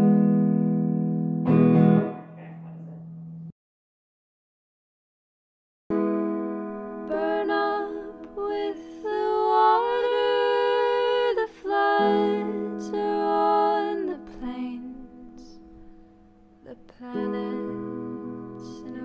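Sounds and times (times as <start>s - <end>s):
wordless vocal harmony: 7.0s - 15.8s, 16.6s - 19.0s.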